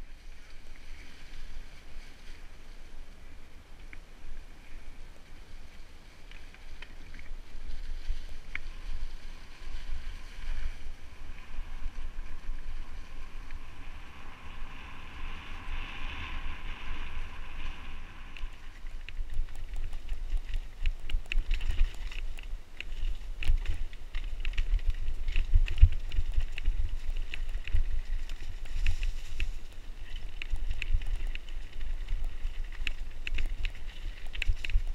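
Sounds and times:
wind rumble on microphone: 0.0 - 34.9
tyre noise over leaves: 6.9 - 34.9.

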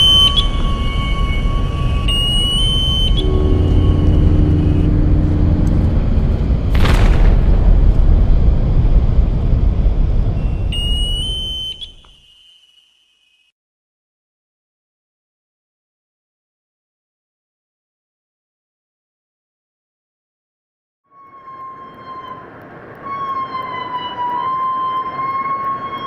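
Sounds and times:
high electronic ping: 0.0 - 7.8
ship engines rumbling: 0.0 - 12.3
underwater blast: 2.1 - 12.0.

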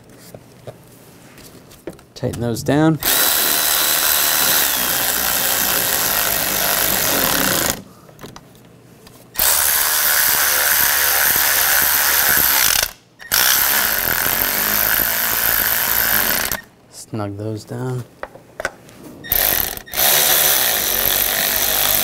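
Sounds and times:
electric ratchet running: 3.0 - 7.8, 9.4 - 16.7, 19.3 - 22.0.

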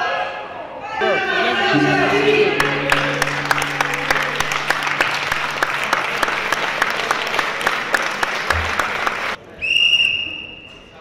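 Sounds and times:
low steady hum: 1.7 - 9.0
crowd applause: 1.7 - 9.4.

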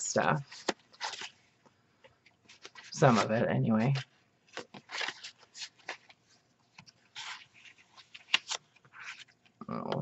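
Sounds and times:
paper rustling and sliding: 0.4 - 1.7, 2.3 - 9.5.

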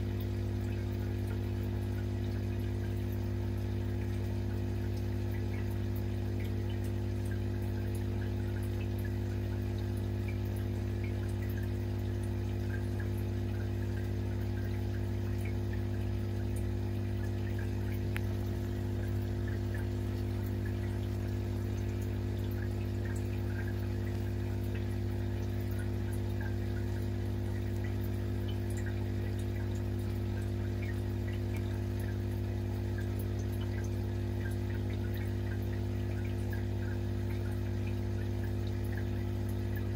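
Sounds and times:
water bubbling and trickling: 0.0 - 39.9.

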